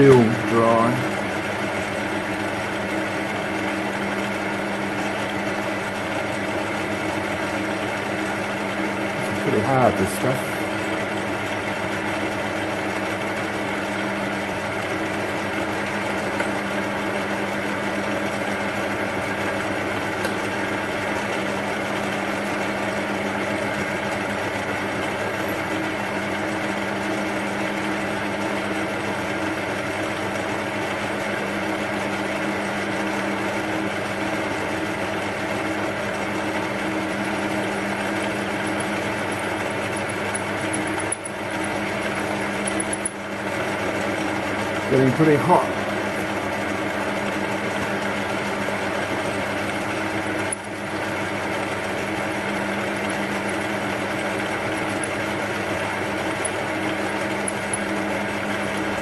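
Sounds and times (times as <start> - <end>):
metal lathe humming: 0.0 - 59.0.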